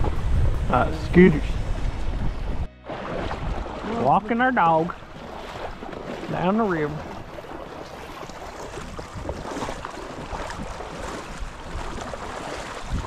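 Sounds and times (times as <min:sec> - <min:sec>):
wind noise on microphone: 0:00.0 - 0:04.0, 0:07.0 - 0:13.0
river water rushing and splashing: 0:00.0 - 0:13.0.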